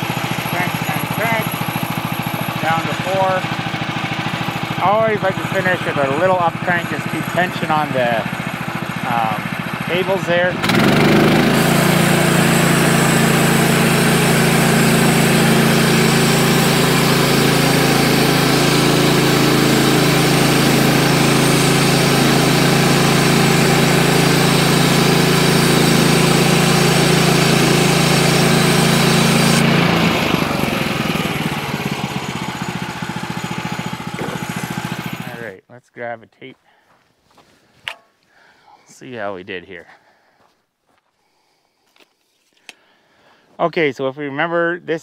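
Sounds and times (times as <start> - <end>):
sawmill engine running: 0.0 - 35.6
band blade cutting log: 10.7 - 29.8.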